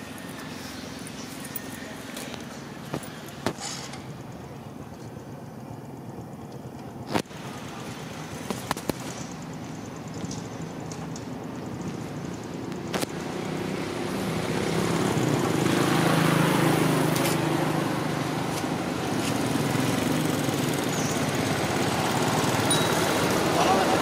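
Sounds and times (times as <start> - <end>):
small engine running: 13.1 - 24.0.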